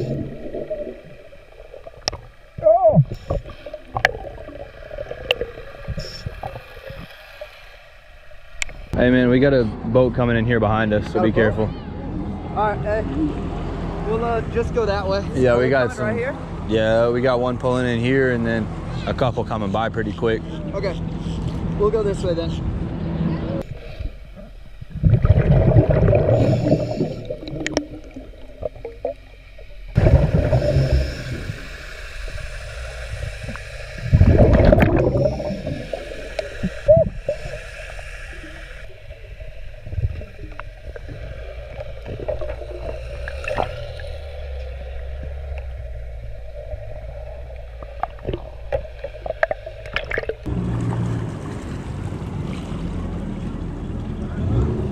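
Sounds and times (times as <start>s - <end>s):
gurgling exhaled bubbles: 0.0s - 7.2s, 24.8s - 37.9s, 38.5s - 51.0s
steady low hum: 16.0s - 50.8s.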